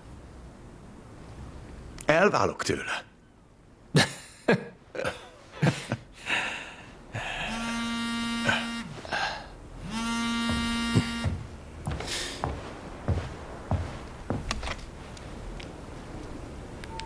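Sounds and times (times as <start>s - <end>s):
phone vibrating on tabletop: 7.4s - 9.1s, 9.8s - 11.5s
soft knocks: 10.4s - 14.7s.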